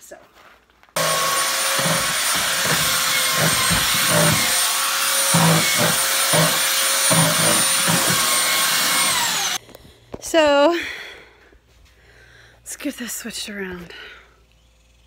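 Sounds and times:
belt sander whining on wood: 1.0s - 9.6s.

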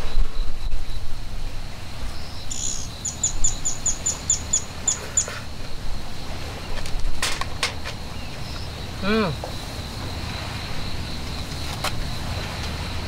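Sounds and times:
small bird chirping: 2.2s - 5.4s.

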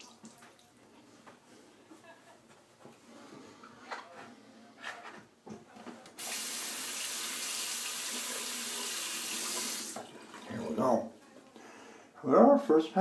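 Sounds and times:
water running from tap into basin: 0.0s - 0.6s, 6.2s - 10.8s.

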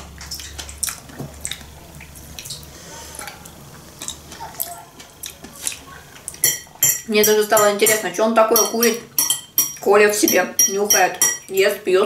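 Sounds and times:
chewing and mouth noises: 0.0s - 6.5s
fork tapping: 6.4s - 11.5s.

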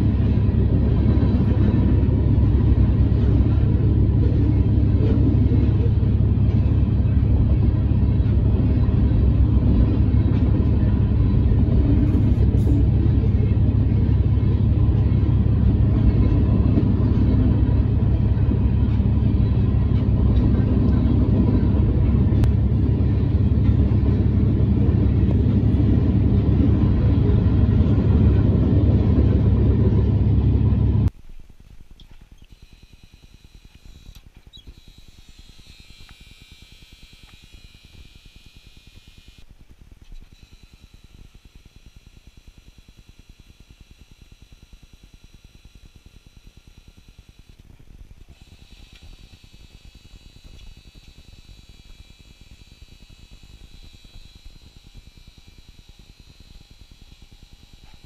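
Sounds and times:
truck engine idling: 0.0s - 31.1s
freight train rumble: 0.0s - 32.1s.

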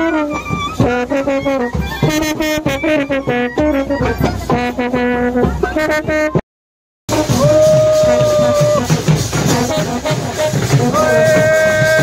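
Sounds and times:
brass band playing a melody: 0.0s - 6.4s, 7.1s - 12.0s
steady drum beat: 7.1s - 12.0s.

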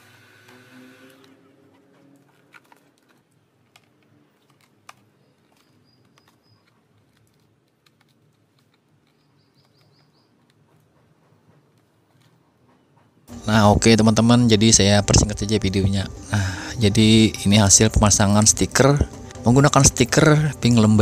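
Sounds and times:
bird chirping: 5.1s - 7.0s, 9.0s - 11.3s.

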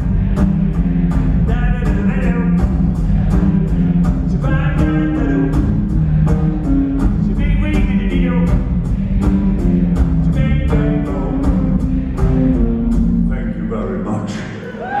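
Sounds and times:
drums and cymbal strokes: 0.0s - 13.4s
rock band playing: 0.0s - 13.4s
bass and keyboards: 0.0s - 15.0s
person singing: 10.2s - 12.7s.

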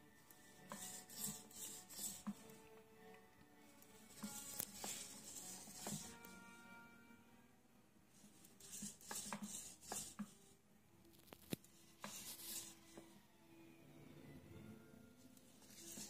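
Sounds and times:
faint scratching: 0.4s - 2.6s, 3.8s - 6.3s, 8.1s - 13.2s, 15.3s - 16.0s.

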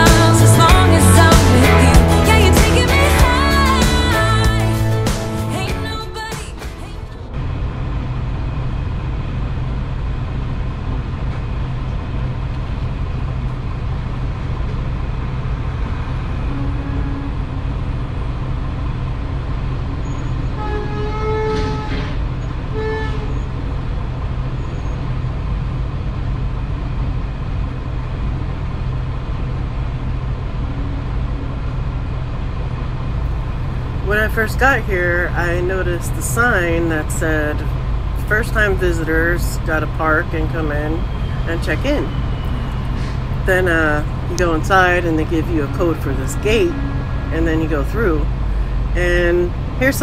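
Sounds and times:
truck engine idling: 0.0s - 50.0s
truck horn honking: 16.2s - 17.8s, 19.3s - 23.7s, 30.5s - 32.1s, 40.3s - 49.6s.

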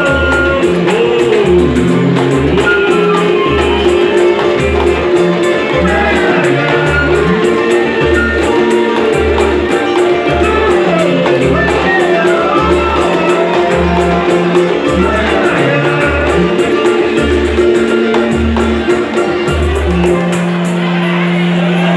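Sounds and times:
man singing into microphone: 0.0s - 4.7s, 5.6s - 9.0s, 10.3s - 17.9s
deep drum beat: 0.0s - 20.6s
samba band playing: 0.0s - 21.9s.

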